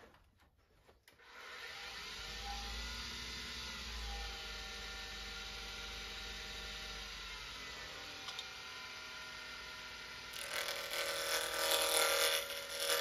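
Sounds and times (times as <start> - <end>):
wood lathe motor whirring: 1.2 - 13.0.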